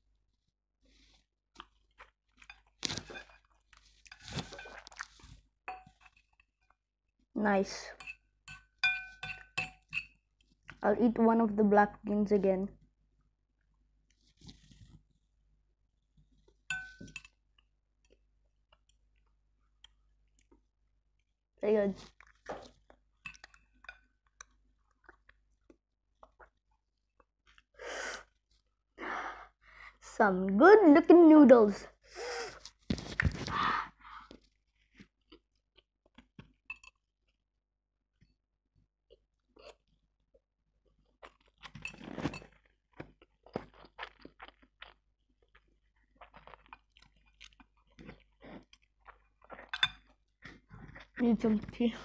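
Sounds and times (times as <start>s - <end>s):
soft chewing: 0.9s - 6.8s, 13.6s - 15.4s, 16.0s - 21.3s, 22.0s - 28.7s, 32.5s - 37.0s, 39.1s - 52.0s.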